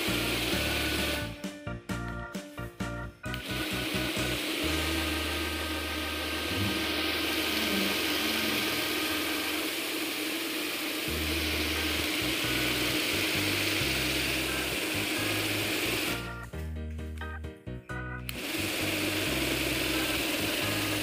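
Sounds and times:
electric fan running: 0.0s - 1.4s, 3.3s - 16.6s, 18.2s - 21.0s.

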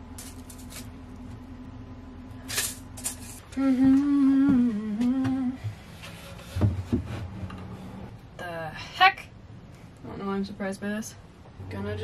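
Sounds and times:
woman humming: 3.5s - 5.6s.

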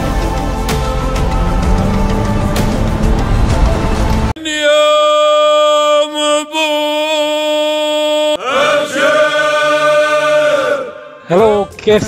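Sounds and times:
man chanting: 4.4s - 8.4s.

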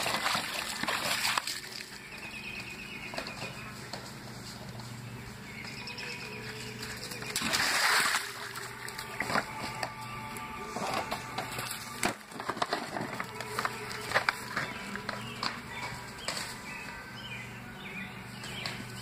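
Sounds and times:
puppy splashing water: 0.0s - 2.4s, 6.4s - 9.5s.

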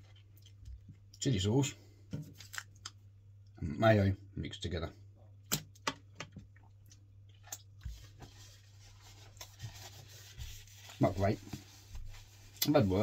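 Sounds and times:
hands wiped on paper napkin: 7.8s - 13.0s.

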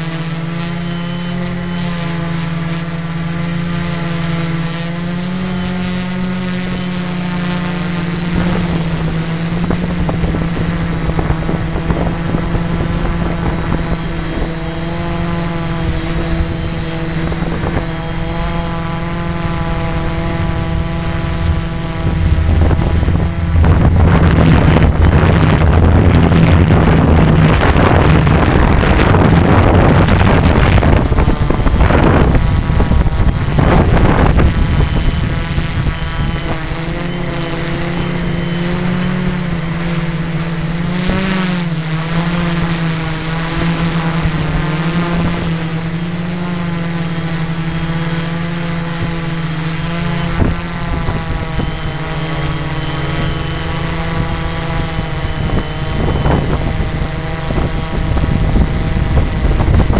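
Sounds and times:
drone propellers buzzing: 0.0s - 59.9s
wind on microphone: 0.0s - 59.9s.

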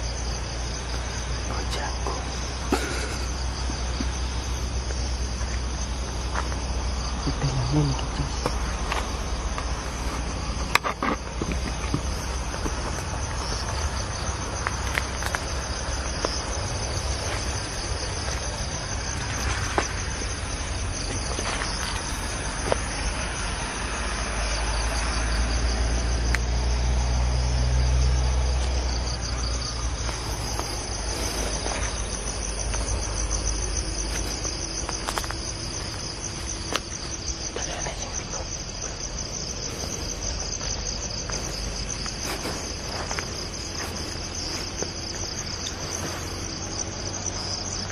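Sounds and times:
crickets chirping: 0.0s - 47.9s
footsteps through grass and leaves: 29.3s - 37.5s, 38.6s - 47.8s.

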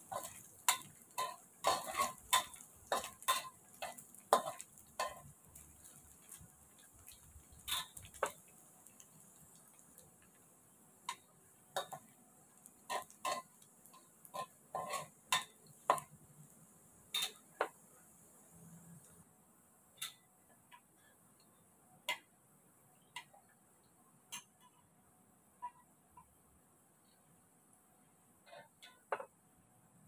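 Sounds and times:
metal spatula clinking in a wok: 0.0s - 6.0s, 12.9s - 16.1s, 17.2s - 17.5s
pork fat frying in oil: 0.0s - 21.5s.

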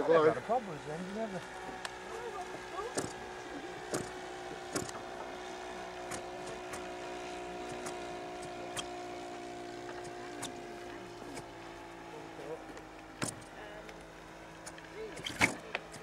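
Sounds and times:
model plane engine drone: 0.0s - 16.0s
sharp clicks: 3.9s - 5.0s, 6.0s - 6.9s.

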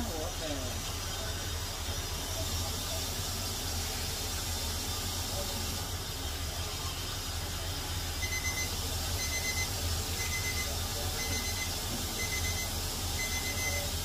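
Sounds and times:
electronic beeper high beeps: 8.2s - 13.9s.

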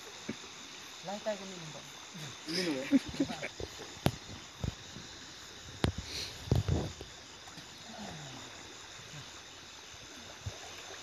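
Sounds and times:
faint river hiss: 0.0s - 11.0s
night insects chirring: 0.0s - 11.0s.

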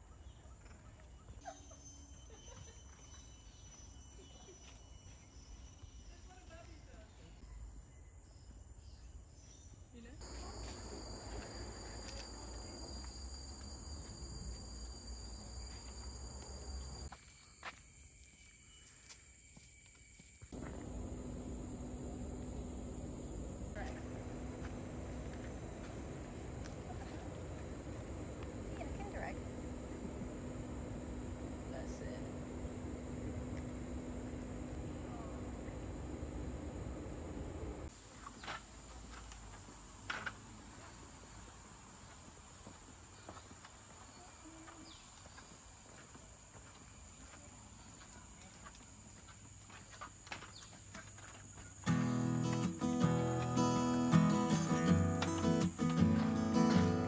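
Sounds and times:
insects buzzing: 10.2s - 37.9s, 48.9s - 57.0s
low steady hum: 20.6s - 37.9s
high-pitched insect drone: 51.8s - 57.0s.

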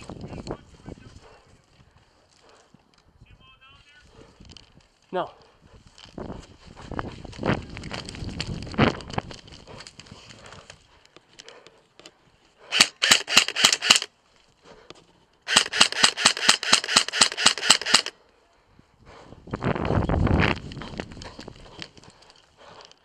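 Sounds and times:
airsoft gun firing bursts: 12.7s - 14.1s, 15.5s - 18.1s.

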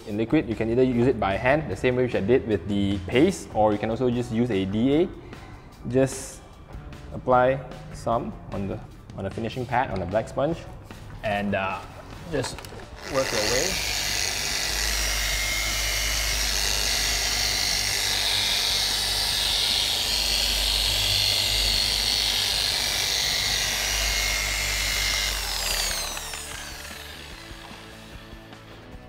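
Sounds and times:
polisher motor running: 12.9s - 28.9s
motor winding down: 13.0s - 28.7s.

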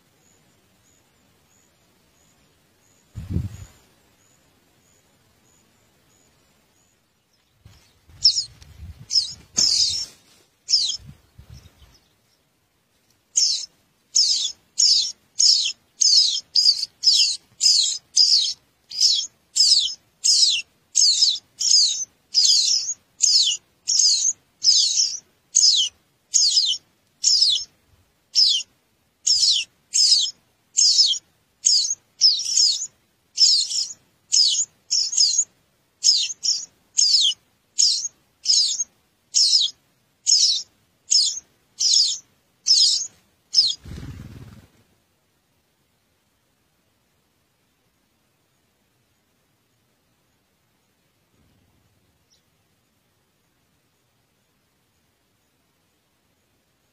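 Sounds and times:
nestlings begging cheeps: 8.1s - 12.0s, 13.3s - 27.7s, 28.3s - 44.8s.

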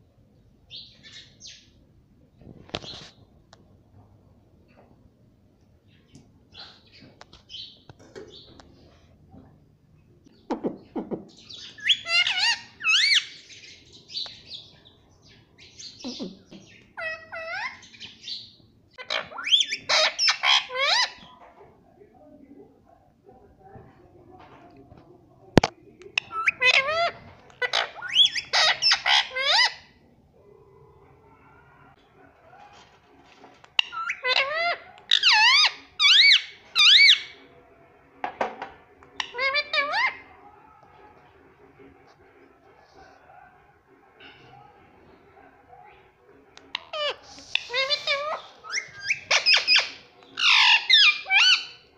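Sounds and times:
parakeet calling: 11.4s - 14.2s, 26.2s - 29.8s, 46.7s - 51.8s.

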